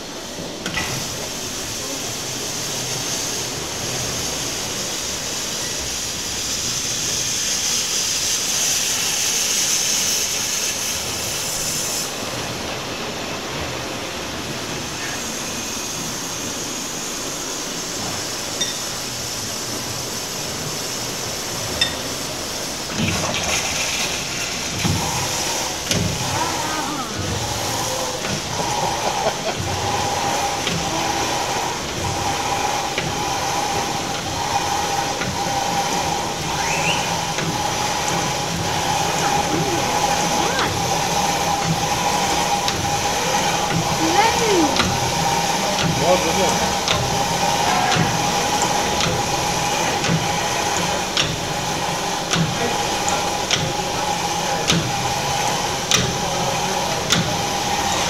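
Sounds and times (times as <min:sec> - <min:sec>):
constant high hum: 0:00.0 - 0:58.0
machinery hiss and rumble: 0:00.0 - 0:58.0
steam engine running: 0:00.0 - 0:58.0.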